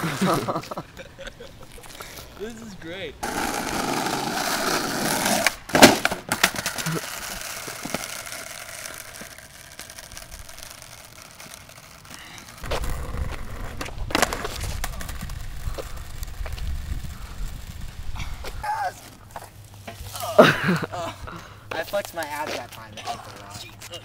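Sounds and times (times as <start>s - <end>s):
skateboard wheels rolling on asphalt: 0.0s - 24.0s
skateboard clacking on pavement: 3.2s - 16.8s
skateboard clattering and skidding: 3.2s - 16.9s.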